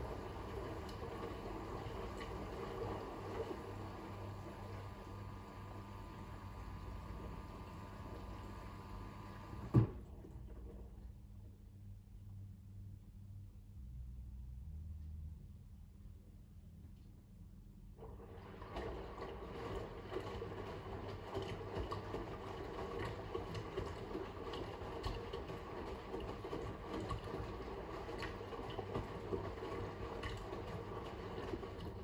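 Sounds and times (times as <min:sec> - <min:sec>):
water rushing into washing machine: 0:00.0 - 0:11.1, 0:18.0 - 0:32.0.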